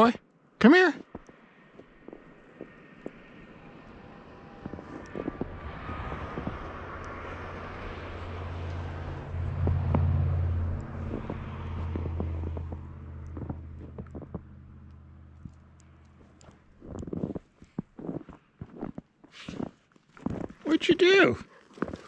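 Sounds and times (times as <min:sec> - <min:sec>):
crunches in snow: 0:00.8 - 0:08.4, 0:11.0 - 0:14.4, 0:15.3 - 0:22.0
vehicle engine passing: 0:02.5 - 0:17.1.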